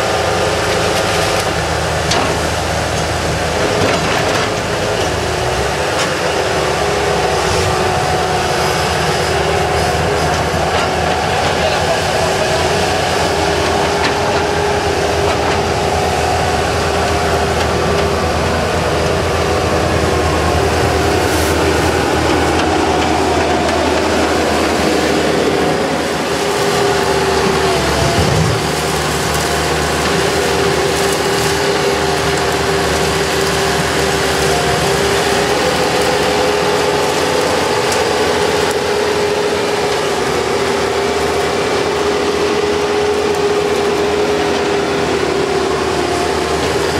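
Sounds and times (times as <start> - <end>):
diesel engine running under load: 0.0 - 46.9.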